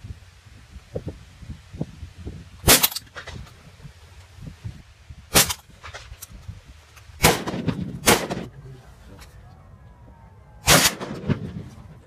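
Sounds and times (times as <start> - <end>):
gunshots: 5.3 - 5.6, 7.2 - 8.6, 10.6 - 11.8.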